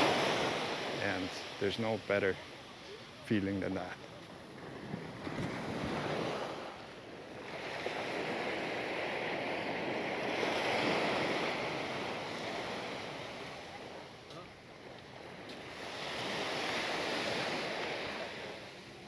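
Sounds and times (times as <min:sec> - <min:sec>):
sea waves washing on sand: 0:00.0 - 0:19.0
wind on microphone: 0:04.4 - 0:13.7.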